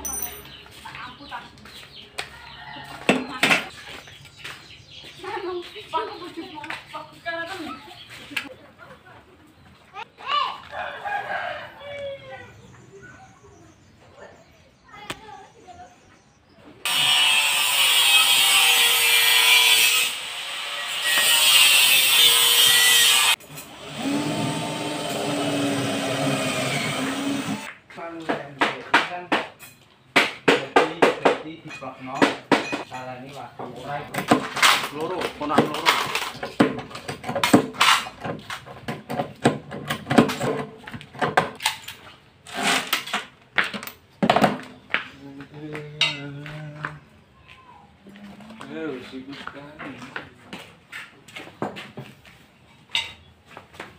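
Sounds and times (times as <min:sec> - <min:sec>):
saw rasping: 0:16.9 - 0:27.7.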